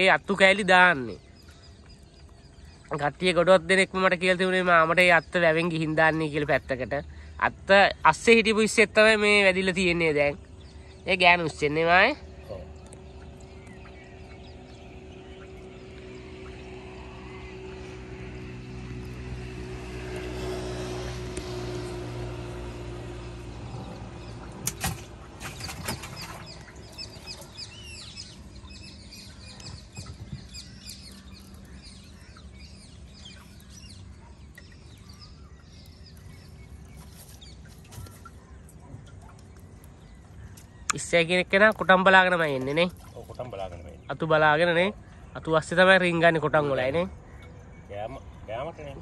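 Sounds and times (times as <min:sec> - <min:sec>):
small birds chirping: 0:00.0 - 0:49.0
vehicle engine passing: 0:11.6 - 0:37.7.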